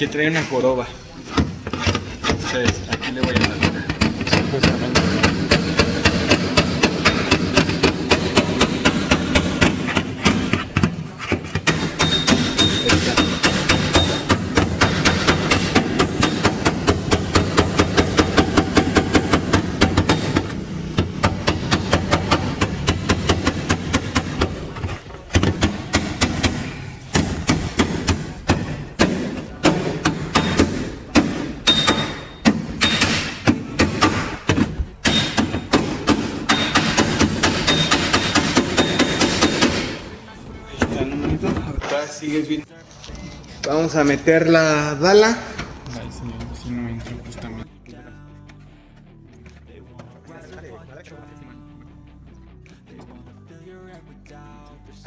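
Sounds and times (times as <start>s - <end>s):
hammer tapping on sheet metal: 1.4s - 24.6s, 25.3s - 40.0s.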